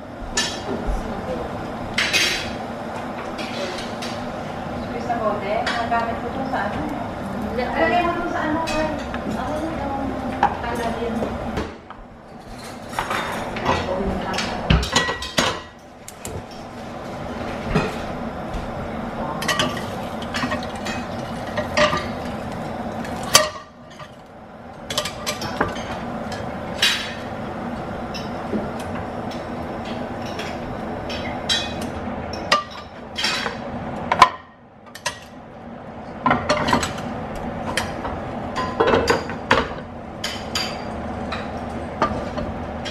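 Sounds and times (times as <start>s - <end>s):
steady sizzling hiss: 0.0s - 42.9s.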